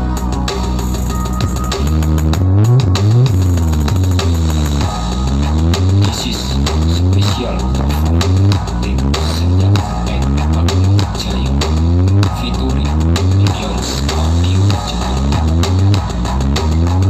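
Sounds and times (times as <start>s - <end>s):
bass-heavy music: 0.0s - 17.0s.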